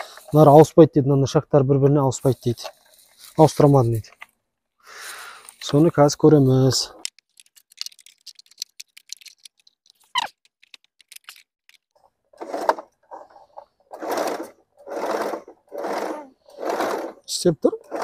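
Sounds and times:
electric sewing machine running: 14.0 - 17.2.

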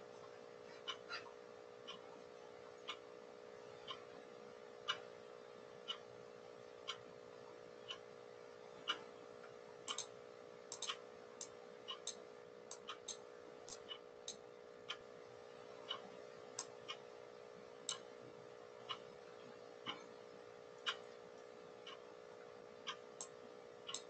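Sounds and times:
faint clock ticking: 0.0 - 24.0
steady low hum: 0.0 - 24.0
irregular clicks: 9.9 - 10.1, 10.7 - 14.4.

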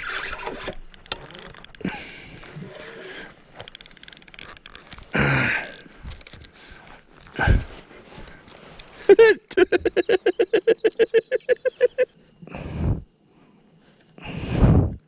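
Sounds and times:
spinning reel buzzing whir: 0.0 - 2.7.

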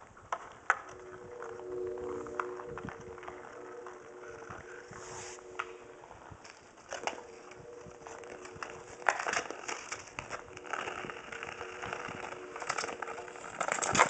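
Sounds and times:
ice skates scraping on ice: 0.2 - 14.0
hockey sticks clacking on ice: 6.4 - 14.0.

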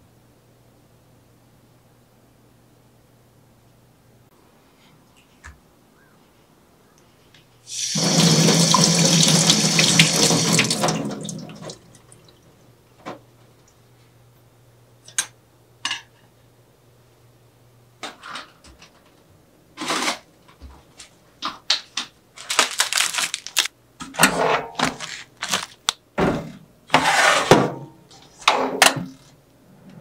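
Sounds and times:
kitchen handling clicks and knocks: 24.0 - 25.1, 27.5 - 29.2
metal tray and rack clattering: 24.0 - 29.2.

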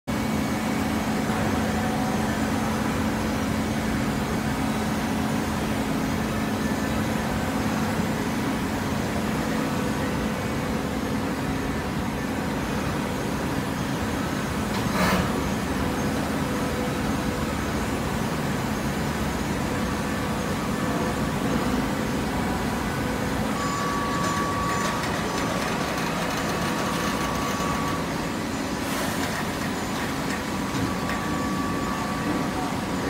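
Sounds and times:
hydraulic baler humming: 13.6 - 33.0.

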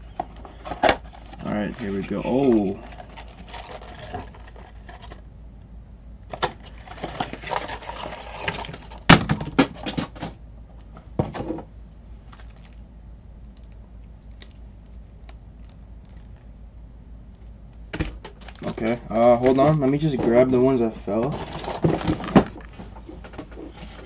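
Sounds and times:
card packs rustling and clicking: 0.0 - 5.2, 6.3 - 10.4, 12.2 - 12.8, 13.5 - 16.5, 17.4 - 24.0
card packs spilling out: 6.3 - 10.3, 18.1 - 23.0.

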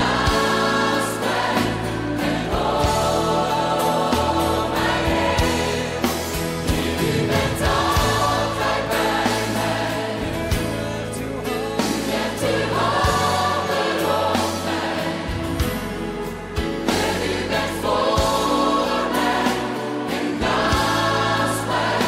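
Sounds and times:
choir singing worship song: 0.0 - 22.0
sustained bass line: 0.0 - 22.0
drum hits: 5.1 - 8.6.

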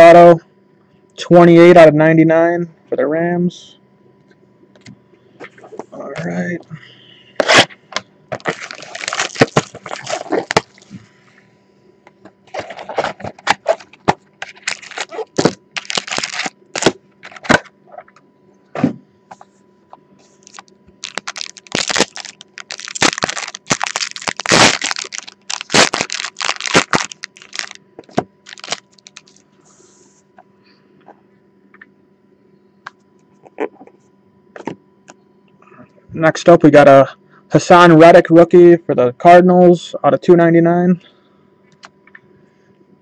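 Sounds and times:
foil packs crinkling and tearing: 8.3 - 10.9, 12.5 - 17.6, 20.4 - 29.4.

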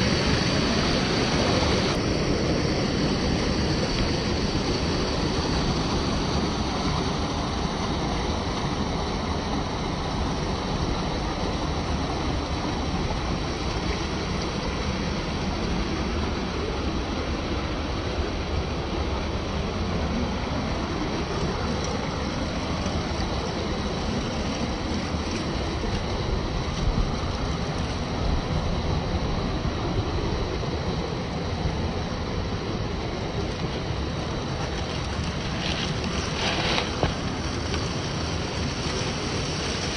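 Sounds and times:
rushing water: 0.0 - 39.9
small electric motor whine: 18.9 - 39.9.

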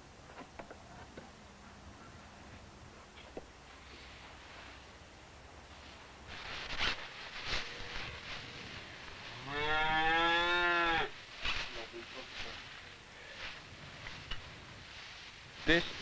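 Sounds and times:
cow mooing: 9.4 - 11.1.

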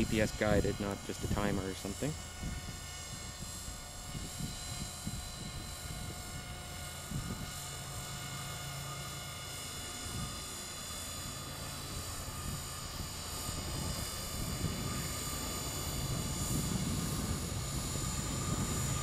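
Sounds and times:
wind on microphone: 0.0 - 8.3, 9.8 - 19.0
rc helicopter rotor whine: 0.0 - 19.0.

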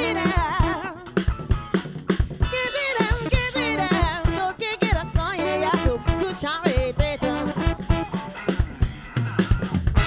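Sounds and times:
woman singing: 0.0 - 1.2, 2.4 - 7.9
funk band playing: 0.0 - 10.0.

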